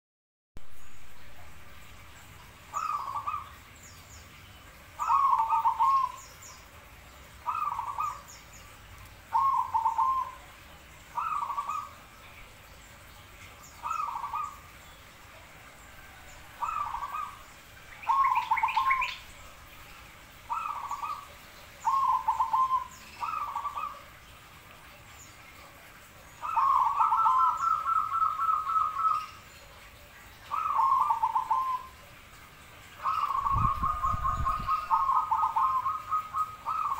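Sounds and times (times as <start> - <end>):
dove cooing: 2.7 - 3.5, 5.0 - 6.2, 7.4 - 8.3, 9.3 - 10.6, 11.2 - 12.0, 13.8 - 14.7, 16.0 - 19.2, 20.5 - 24.2, 26.4 - 29.4, 30.5 - 32.0, 33.0 - 36.9.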